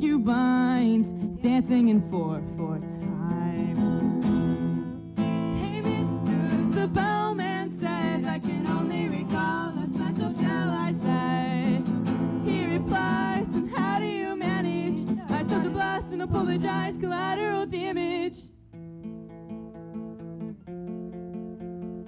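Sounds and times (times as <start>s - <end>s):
woman singing: 0.0s - 2.8s, 5.4s - 18.5s
strummed acoustic guitar: 0.0s - 22.0s.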